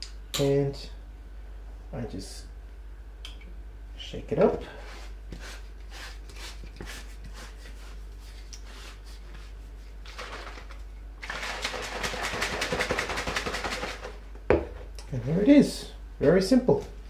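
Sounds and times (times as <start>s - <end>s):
liquid sloshing in shaker bottle: 10.0s - 14.2s.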